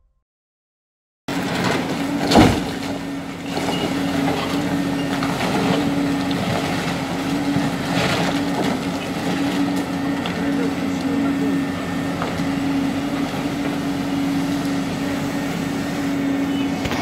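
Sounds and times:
excavator engines humming: 0:01.3 - 0:17.0.

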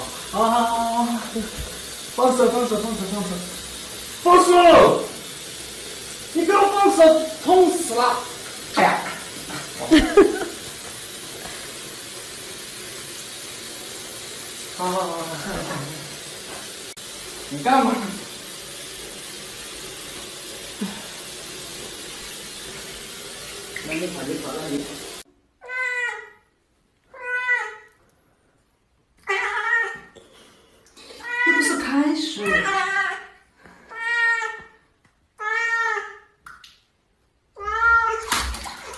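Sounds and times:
running bath water: 0:00.0 - 0:26.4, 0:29.2 - 0:38.9
cat yowling: 0:25.6 - 0:26.4, 0:27.1 - 0:27.9, 0:29.2 - 0:30.1, 0:33.9 - 0:34.7, 0:35.4 - 0:36.2, 0:37.6 - 0:38.4.

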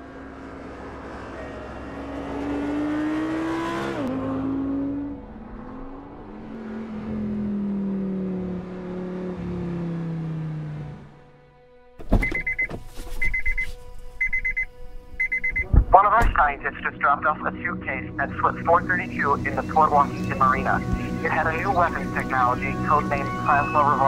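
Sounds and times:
car engine passing by: 0:00.0 - 0:11.3, 0:18.4 - 0:24.0
lower engine sliding down in pitch: 0:00.0 - 0:11.3, 0:18.6 - 0:24.0.

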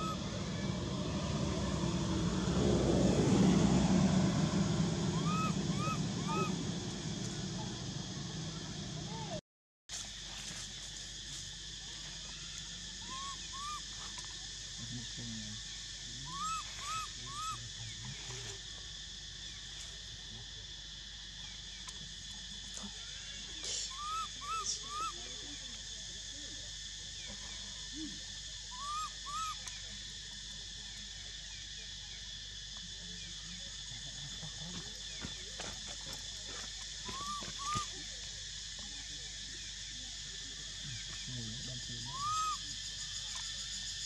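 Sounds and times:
short rising-and-falling calls: 0:00.0 - 0:09.4, 0:13.0 - 0:13.9, 0:16.3 - 0:17.6, 0:23.8 - 0:25.2, 0:28.7 - 0:29.6, 0:37.0 - 0:38.0, 0:42.0 - 0:42.6
forest insects droning: 0:00.0 - 0:44.0.

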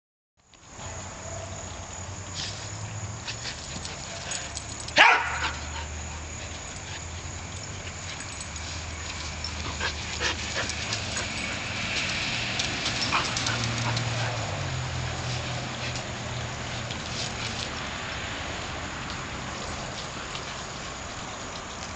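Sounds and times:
dogs playing: 0:02.2 - 0:21.9
dog barking: 0:05.0 - 0:05.8.

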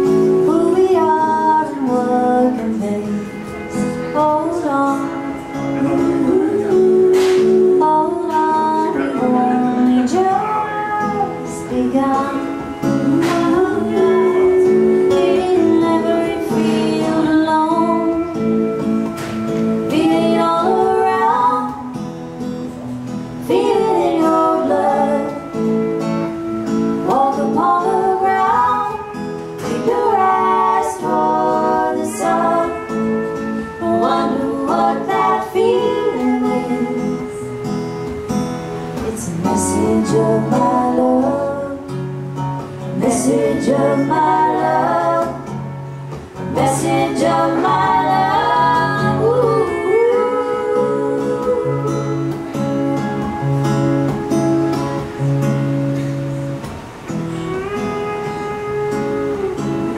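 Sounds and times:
women singing: 0:00.0 - 0:22.5, 0:23.2 - 0:55.2
strummed acoustic guitar: 0:00.0 - 0:59.9
sustained accompanying instrument: 0:00.0 - 0:59.9.

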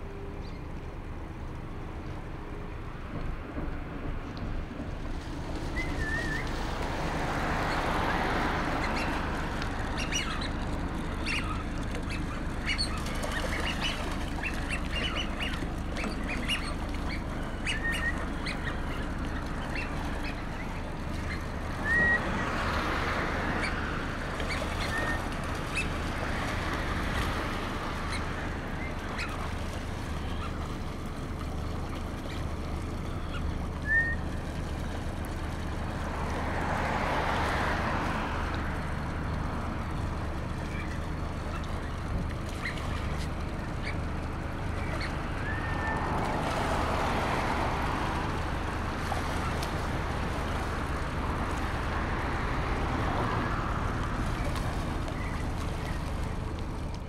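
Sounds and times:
low engine hum: 0:00.0 - 0:57.0
ducks whistling: 0:05.7 - 0:06.5, 0:08.7 - 0:22.6, 0:24.4 - 0:26.1, 0:28.0 - 0:31.4, 0:32.2 - 0:34.7, 0:40.6 - 0:46.4.

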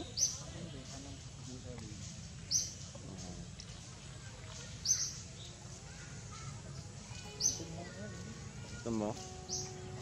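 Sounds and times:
bird chirping: 0:00.0 - 0:01.0, 0:02.2 - 0:03.4, 0:04.6 - 0:06.0, 0:07.2 - 0:08.0, 0:08.7 - 0:10.0.

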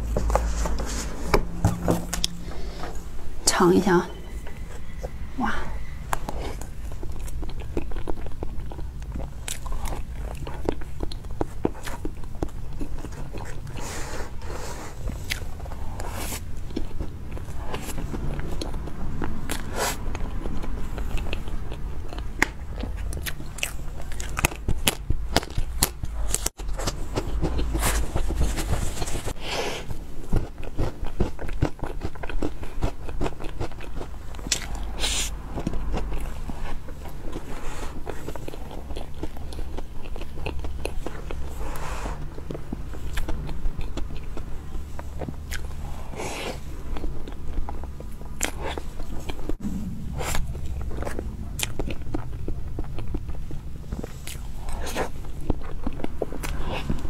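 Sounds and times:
wet chewing mouth clicks: 0:15.1 - 0:28.0, 0:30.4 - 0:57.0.

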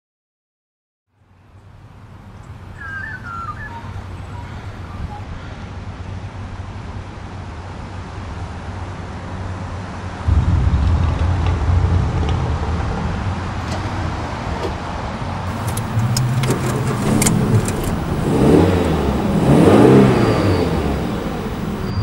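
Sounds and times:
bird chirps: 0:02.4 - 0:05.2, 0:18.1 - 0:22.0
distant traffic rumble: 0:09.6 - 0:22.0.

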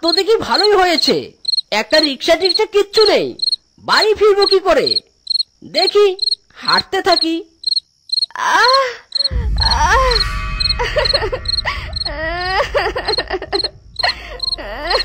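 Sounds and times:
crickets chirping: 0:00.0 - 0:15.0
woman crying and moaning: 0:08.3 - 0:15.0
low music drone: 0:09.3 - 0:15.0.

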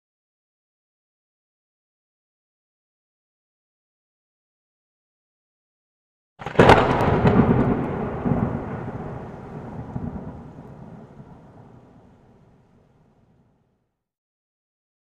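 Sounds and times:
thunder crack and rumble: 0:06.4 - 0:12.9.

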